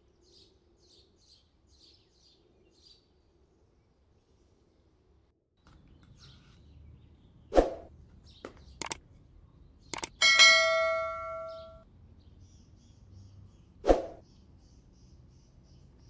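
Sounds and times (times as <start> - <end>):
ringing metal strike: 10.2 - 11.8.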